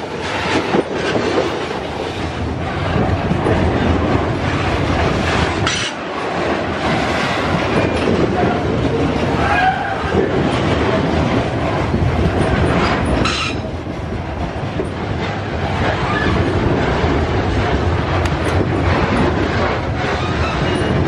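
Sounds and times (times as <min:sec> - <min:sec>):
train wheels clattering on rails: 0:00.0 - 0:21.0
high squeal of wheels: 0:09.4 - 0:10.1, 0:13.2 - 0:13.6, 0:16.0 - 0:16.4, 0:20.2 - 0:21.0.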